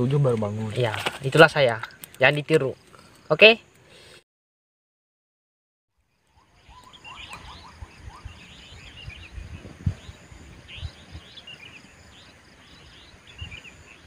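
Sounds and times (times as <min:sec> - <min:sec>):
birds chirping and trilling: 0:06.0 - 0:14.0.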